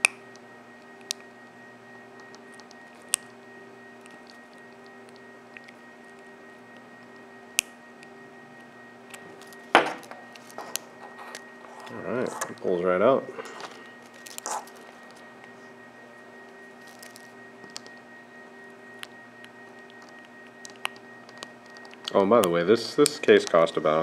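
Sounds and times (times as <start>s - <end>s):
watch band scraping free: 13.5s - 15.2s.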